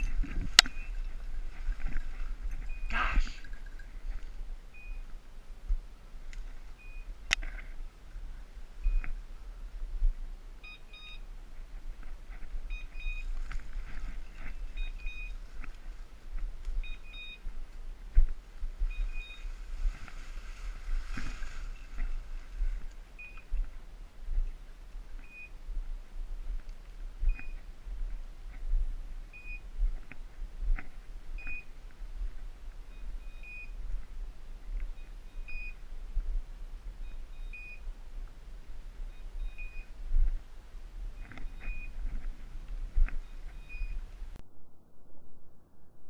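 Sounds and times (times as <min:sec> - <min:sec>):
rustling branches and leaves: 0:00.0 - 0:44.4
high beeps from dog collar: 0:10.6 - 0:11.2, 0:12.7 - 0:13.3, 0:14.4 - 0:15.4, 0:16.8 - 0:17.4, 0:18.9 - 0:19.5, 0:32.9 - 0:33.8, 0:35.0 - 0:35.8, 0:37.0 - 0:37.8, 0:39.1 - 0:39.9, 0:41.2 - 0:42.0, 0:43.2 - 0:44.0.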